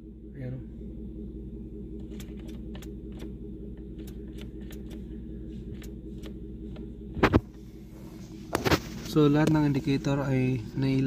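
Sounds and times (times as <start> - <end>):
steady low hum: 0.0 - 11.0
ignition clicking: 2.0 - 5.1, 5.7 - 7.6.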